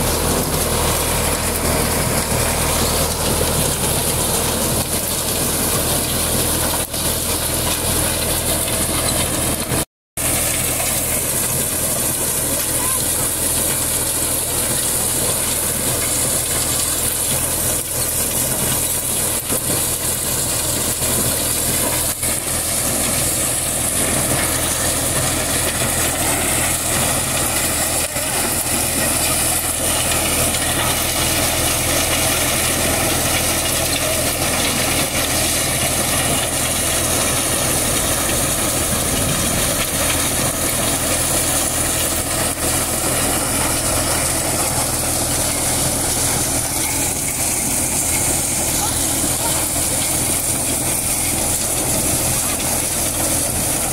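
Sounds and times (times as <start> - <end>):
corn thresher rushing noise: 0.0 - 53.9
tractor engine running: 0.0 - 53.9.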